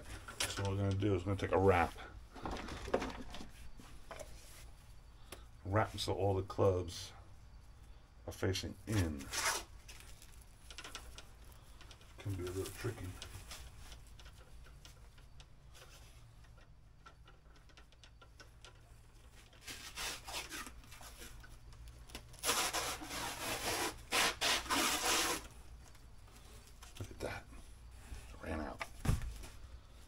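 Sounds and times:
plastic film rustling: 9.0 - 11.4
plastic stretch wrap rasping: 19.3 - 21.3, 22.1 - 25.5.

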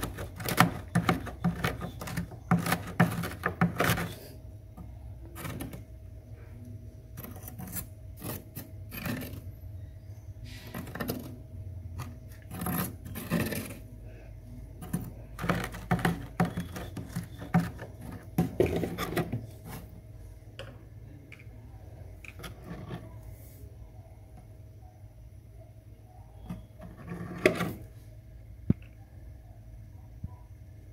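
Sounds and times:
plastic tray crunching and scraping frost: 0.0 - 4.4, 5.2 - 5.9, 7.2 - 9.5, 10.5 - 11.4, 12.0 - 13.9, 14.8 - 20.0, 26.5 - 27.9
steady low hum: 0.0 - 30.9.

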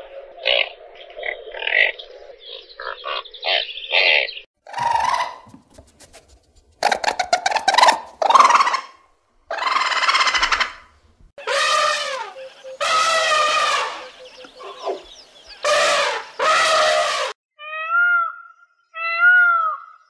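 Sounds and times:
birds chirping: 0.4 - 5.5, 6.9 - 17.4
harsh raspy animal calls: 6.8 - 10.8.

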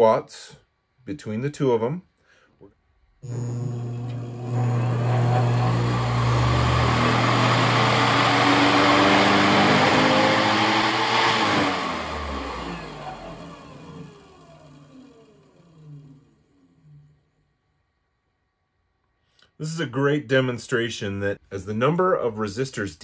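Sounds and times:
electric motor hum and whine: 3.2 - 17.2.

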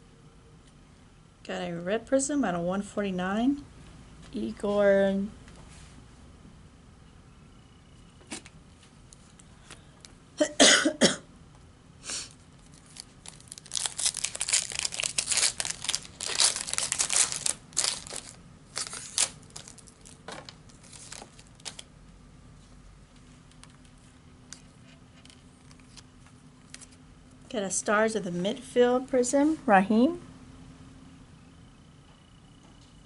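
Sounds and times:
person coughing: 10.4 - 11.3
foil wrapper crinkling and tearing: 12.3 - 21.9.

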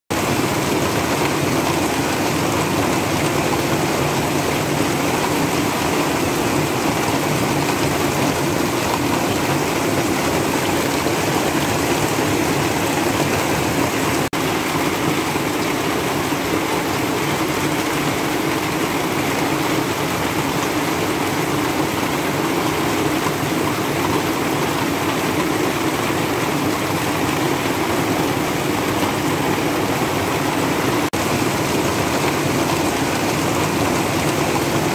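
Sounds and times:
heavy rain on a roof: 0.1 - 34.9
water pouring off roof edge: 0.1 - 34.9.

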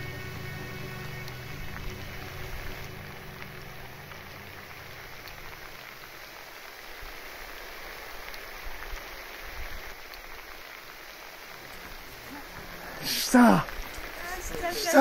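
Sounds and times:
background music: 0.0 - 6.1
steady rain falling: 0.0 - 15.0.

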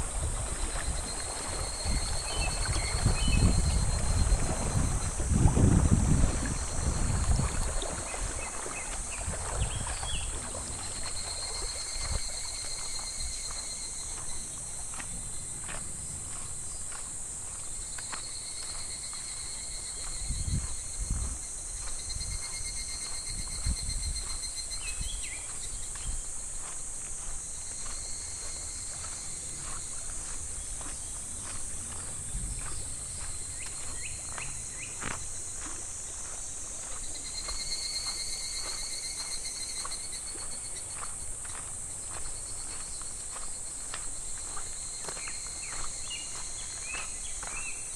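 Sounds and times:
wind rumble on microphone: 0.0 - 13.4, 14.2 - 17.9, 19.9 - 38.8
cicadas droning: 0.0 - 47.9
pulsed insect call: 0.0 - 47.9
stream trickling over pebbles: 0.0 - 47.9.

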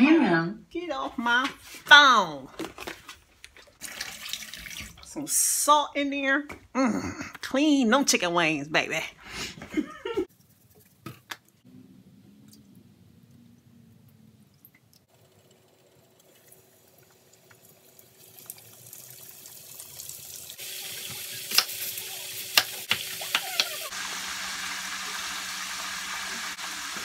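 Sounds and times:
oil popping and crackling: 14.5 - 27.0
oil hissing while deep-frying: 15.2 - 27.0.

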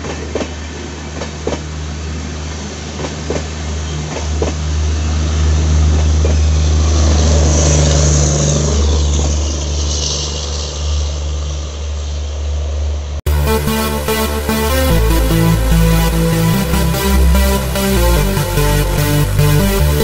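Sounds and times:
electronic music: 13.3 - 20.0.

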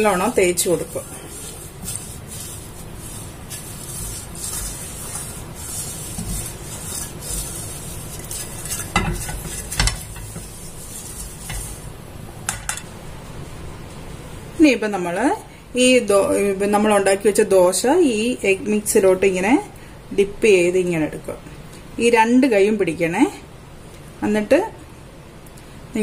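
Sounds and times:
brush knocking on pan: 0.0 - 11.9
brush rubbing pan: 0.0 - 12.1
hot oil sizzling: 0.0 - 12.8.

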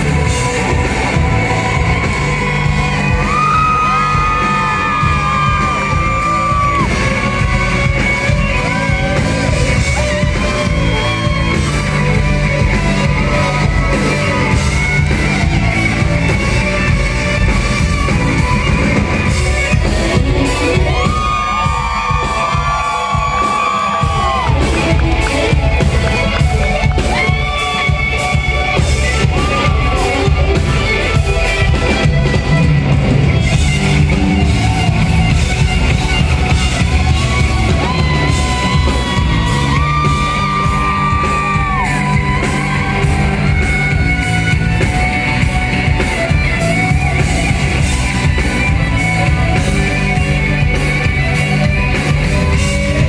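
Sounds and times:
electric guitar solo: 0.0 - 53.0
rock band playing: 0.0 - 53.0.

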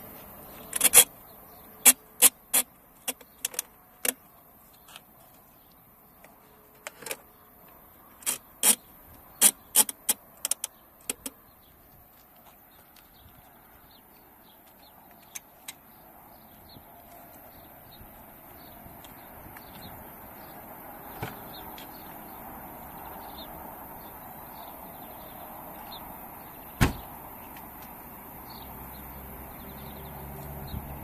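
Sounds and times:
ratchet strap clicking: 0.7 - 1.1.

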